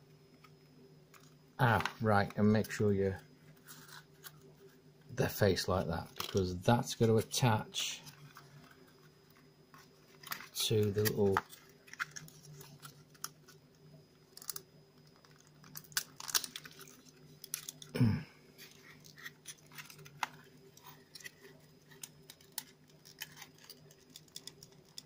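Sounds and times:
faint steady hum: 0:00.0 - 0:25.0
cardboard clicks and crinkles: 0:08.0 - 0:18.0, 0:18.6 - 0:25.0.

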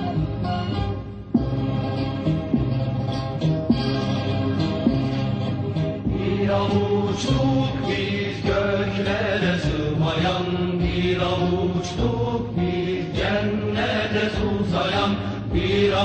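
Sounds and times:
devotional song: 0:06.0 - 0:16.0
voices chanting without words: 0:06.1 - 0:16.0.

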